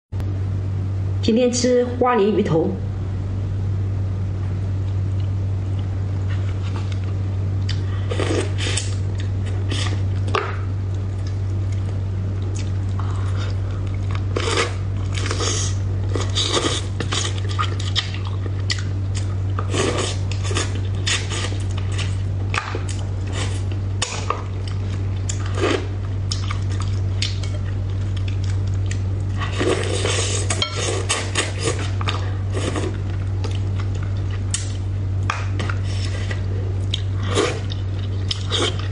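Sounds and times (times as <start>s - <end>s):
steady low hum: 0.2s - 38.9s.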